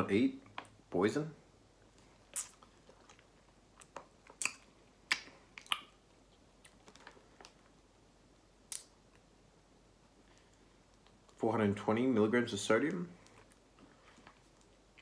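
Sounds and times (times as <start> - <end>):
plastic snack bag crinkling: 6.6 - 7.8.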